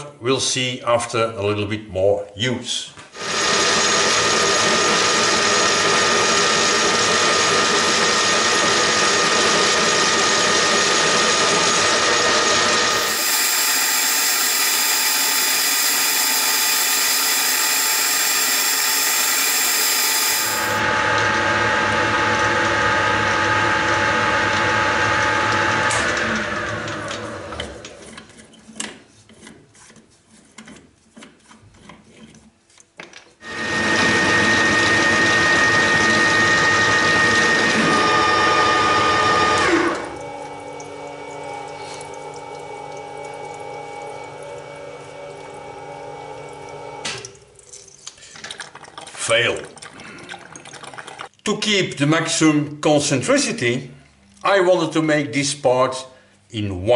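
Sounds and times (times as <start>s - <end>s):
lathe spindle winding down: 3.2s - 27.9s, 33.4s - 40.7s
metal lathe gear whine: 9.7s - 27.3s.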